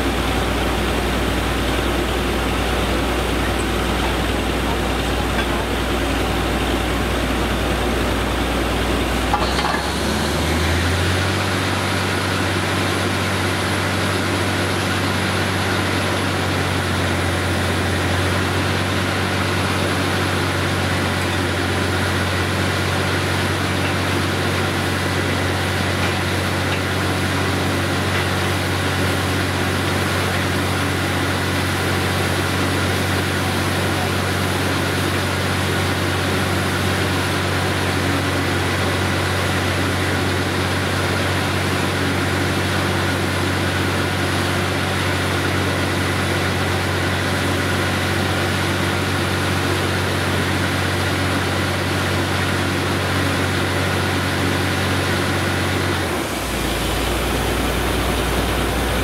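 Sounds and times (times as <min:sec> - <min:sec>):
drilling rig engine humming: 0:00.0 - 0:59.0.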